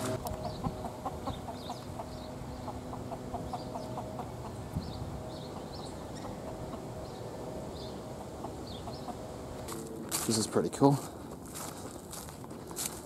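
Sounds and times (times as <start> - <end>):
chickens clucking: 0.0 - 10.2
small birds chirping: 0.0 - 13.0.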